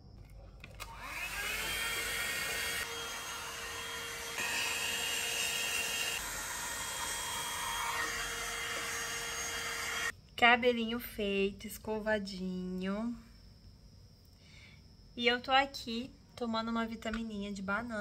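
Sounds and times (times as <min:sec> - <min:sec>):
hair dryer blowing: 0:00.8 - 0:10.1.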